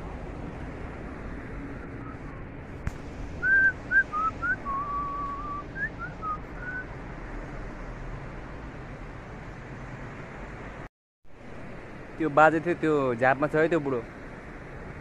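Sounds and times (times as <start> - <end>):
rushing background noise: 0.0 - 15.0
person whistling a tune: 3.4 - 6.9.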